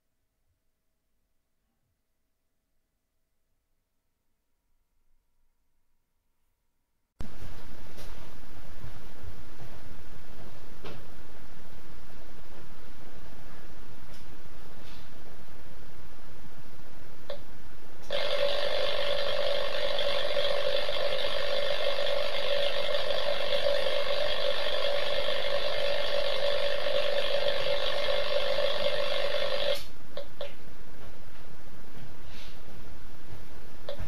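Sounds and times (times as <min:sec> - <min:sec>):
steady electrical buzz: 0:07.2 - 0:34.0.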